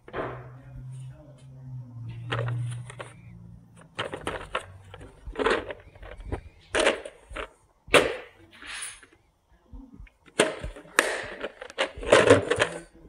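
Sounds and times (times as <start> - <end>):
plastic case scraping: 2.2 - 8.2, 10.3 - 13.0
plastic cases knocking: 2.3 - 8.4, 10.1 - 13.0.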